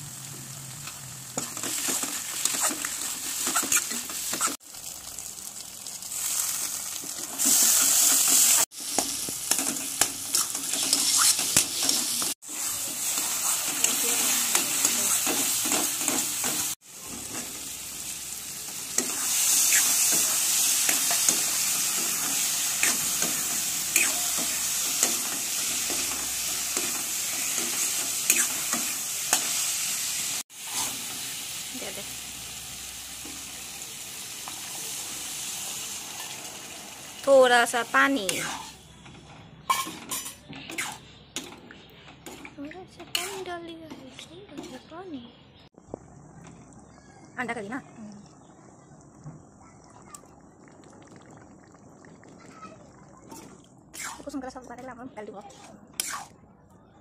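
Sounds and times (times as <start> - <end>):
food sizzling in oil: 0.0 - 38.9
spatula scraping pan: 1.4 - 4.6, 7.1 - 17.6, 38.2 - 38.9, 42.2 - 44.9.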